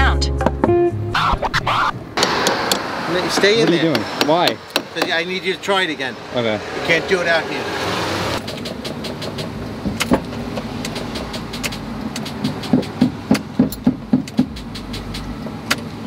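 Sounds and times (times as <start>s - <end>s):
knocks on battery cables: 10.9s - 15.8s.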